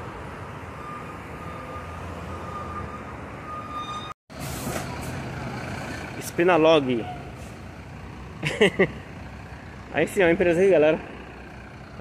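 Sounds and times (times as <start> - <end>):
diesel bus engines humming: 4.4 - 12.0.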